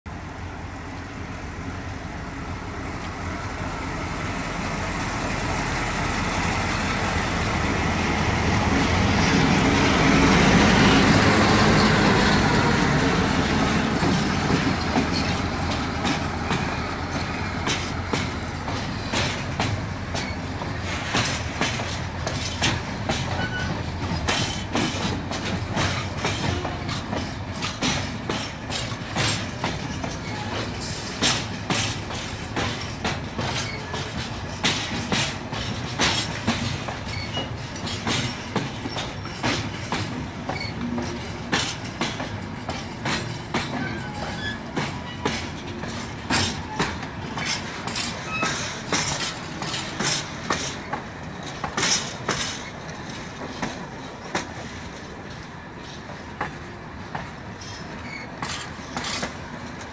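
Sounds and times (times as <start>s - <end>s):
diesel locomotive passing: 0.1s - 59.9s
wagon wheels clickety-clack: 21.0s - 59.9s.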